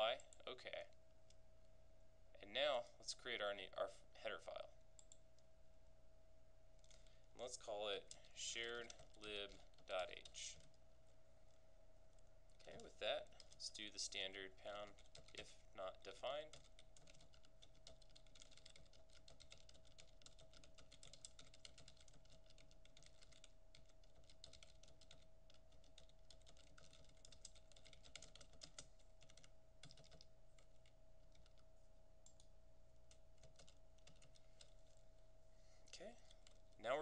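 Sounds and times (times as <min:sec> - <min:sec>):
faint steady hum: 0:00.0 - 0:37.0
computer keyboard typing: 0:05.0 - 0:05.2, 0:06.8 - 0:10.8, 0:11.5 - 0:35.0, 0:36.3 - 0:37.0.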